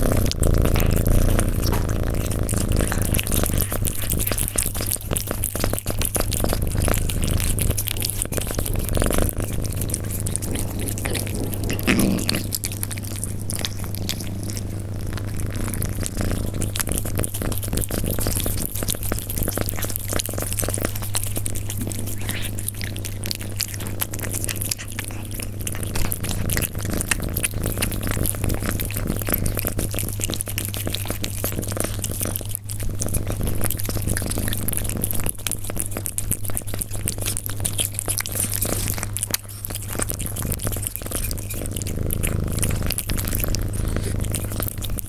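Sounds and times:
cat crunching and chewing food: 0.0s - 45.0s
steady low hum: 0.0s - 45.0s.

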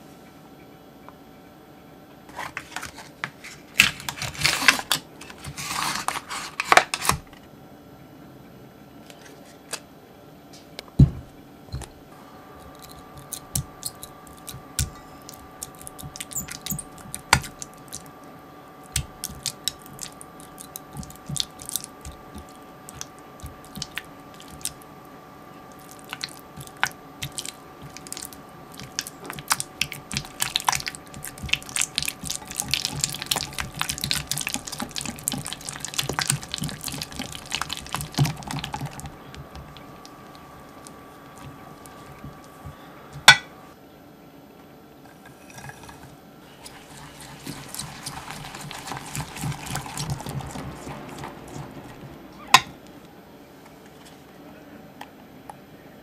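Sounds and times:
packaging crinkling: 2.4s - 7.2s
soft squishing: 12.2s - 43.3s, 45.6s - 54.4s.

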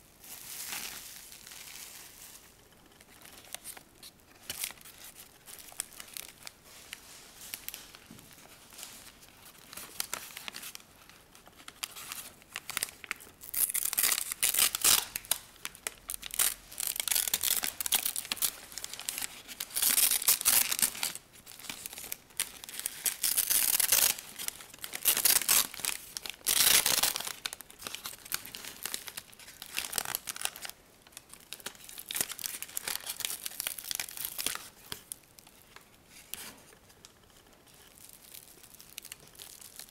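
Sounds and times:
plastic wrap crinkling: 0.0s - 39.9s
paper bag crinkling and tearing: 11.6s - 35.2s.

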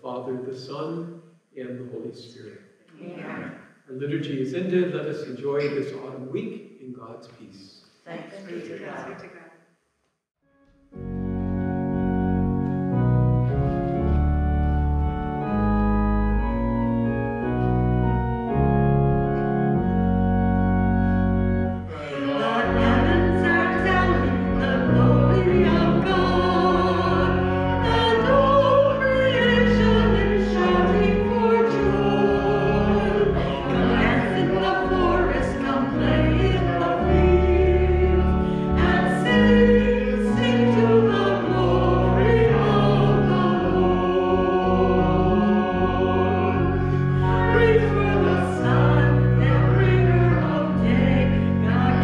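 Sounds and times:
church organ chords: 10.9s - 52.0s
congregation singing a hymn: 11.6s - 52.0s.

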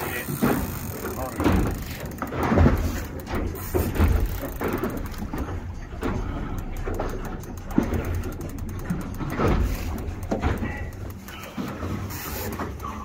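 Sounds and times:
boat motor rumbling: 0.0s - 13.0s.

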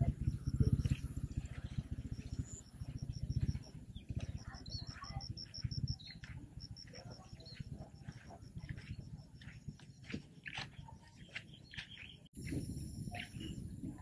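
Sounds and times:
bird chirps: 0.0s - 12.4s, 13.0s - 13.8s.

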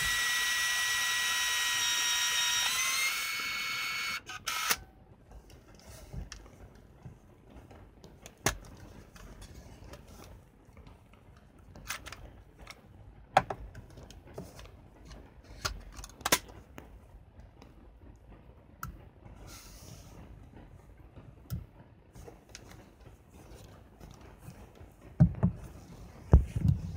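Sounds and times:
plastic camera parts clicking: 11.8s - 12.8s
soft rustle: 22.1s - 26.9s
heavy thumps: 25.2s - 26.9s.

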